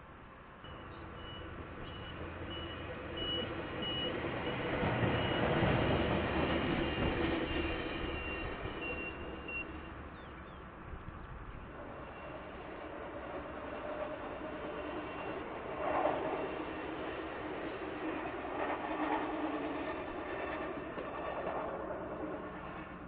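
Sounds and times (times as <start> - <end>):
train passing rumble: 0.0 - 23.0.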